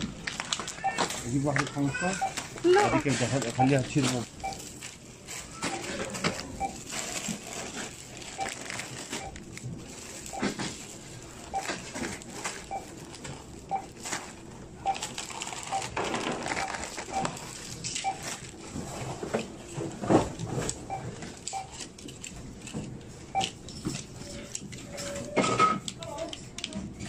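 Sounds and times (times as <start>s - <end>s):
plastic-wrapped groceries rustling: 0.0s - 23.2s
barcode scanner beeping: 0.8s - 1.0s, 1.8s - 4.8s, 5.6s - 6.9s, 8.2s - 9.4s, 12.7s - 13.0s, 13.7s - 14.0s, 14.8s - 17.4s, 18.0s - 18.2s, 20.9s - 21.8s, 23.3s - 23.6s.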